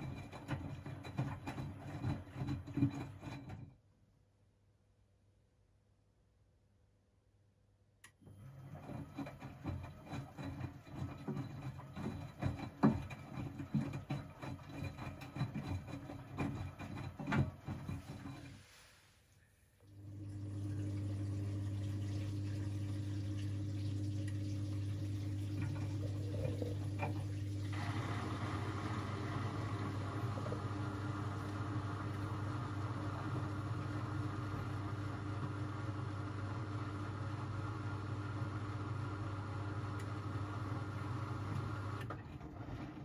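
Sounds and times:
washing machine hum: 0.0 - 4.1, 8.0 - 43.0
water rushing: 25.2 - 32.8.

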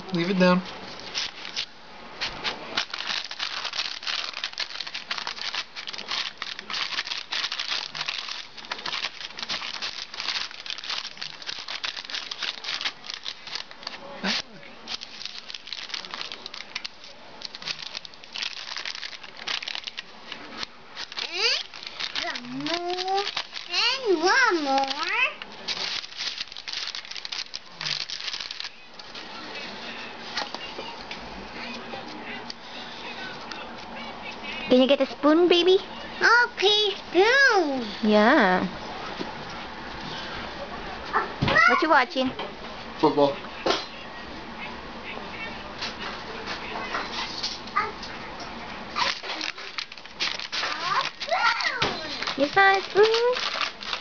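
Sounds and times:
baking paper crinkling: 0.1 - 30.7, 48.9 - 54.0.

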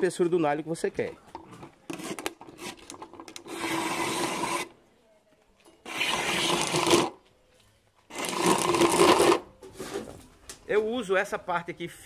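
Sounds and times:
plastic bottle drawn past blade: 1.9 - 4.8, 5.8 - 7.2.

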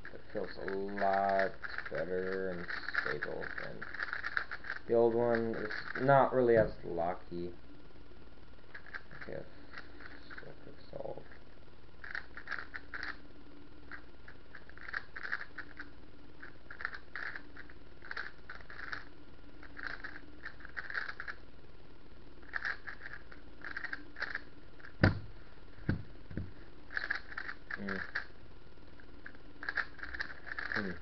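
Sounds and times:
puzzle cube plastic clacking: 0.4 - 6.1, 12.0 - 13.2, 14.6 - 21.4, 22.5 - 25.2, 26.4 - 28.3, 29.2 - 31.0
sharp knock: 25.0 - 25.3.

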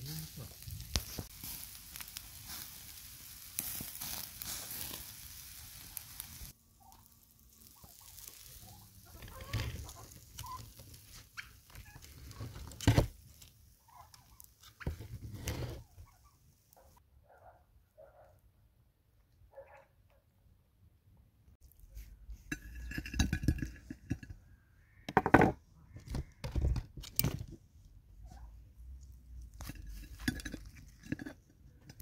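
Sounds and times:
meat sizzling over charcoal: 0.0 - 16.7, 29.4 - 32.0.

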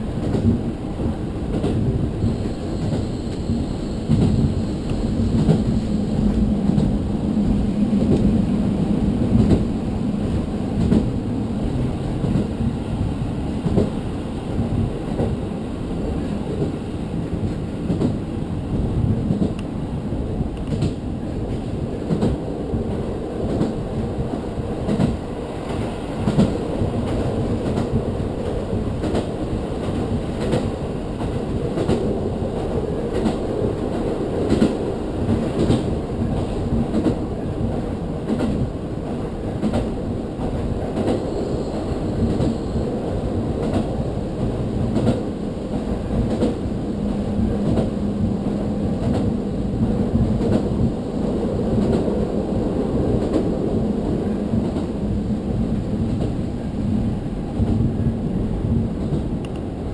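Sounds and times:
rumble of wheels on rails: 0.0 - 59.9.

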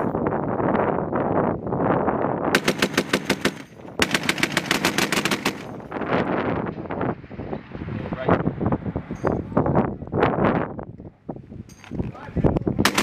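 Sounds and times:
machine gun bursts: 2.6 - 5.8.

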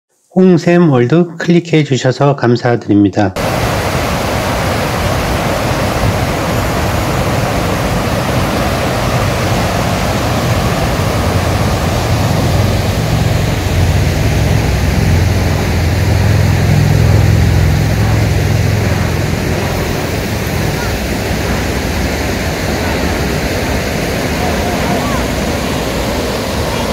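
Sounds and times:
stream water rushing over stones: 3.4 - 26.9
deep low rumble: 7.3 - 26.9.

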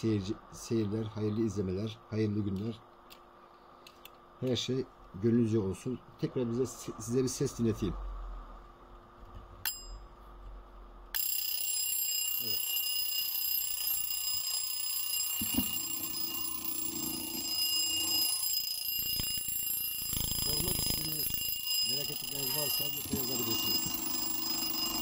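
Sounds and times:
alarm clock bell ringing: 11.2 - 25.0
alarm clock click: 11.2 - 25.0.

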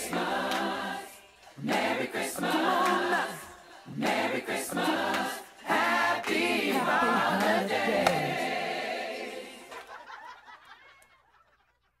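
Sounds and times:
people singing together: 0.0 - 10.4
people laughing: 6.6 - 8.5, 9.6 - 12.0.

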